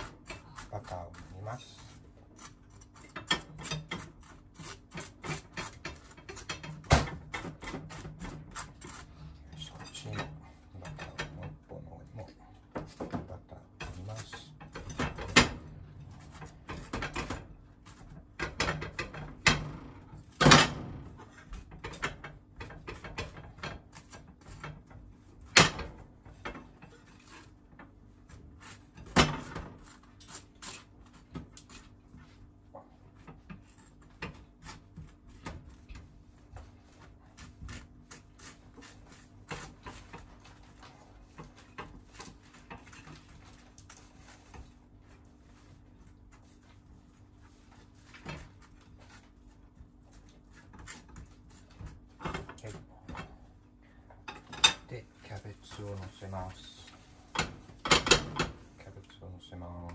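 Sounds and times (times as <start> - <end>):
knife scraping toast: 0.0 - 11.1, 26.8 - 32.4, 33.2 - 52.2.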